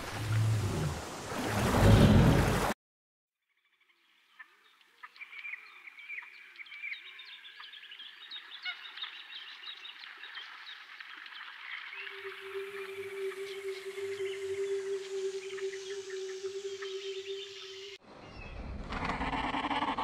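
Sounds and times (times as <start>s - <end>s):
birds chirping: 11.4s - 20.0s
soft wavering low bird calls: 11.5s - 18.6s.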